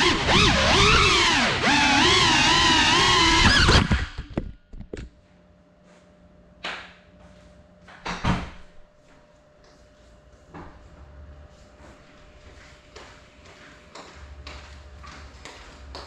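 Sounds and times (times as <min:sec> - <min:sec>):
drone propellers whining: 0:00.0 - 0:04.4.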